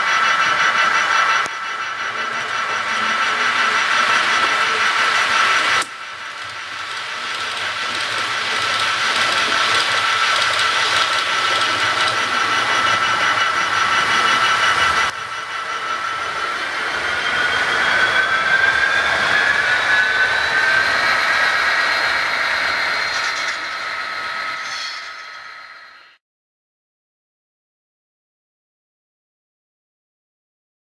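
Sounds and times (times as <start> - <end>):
model locomotive engine sounds: 0.0 - 26.2.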